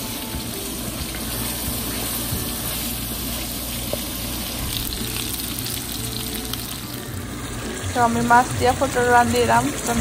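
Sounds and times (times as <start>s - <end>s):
vegetables sizzling in a pot: 0.0s - 10.0s.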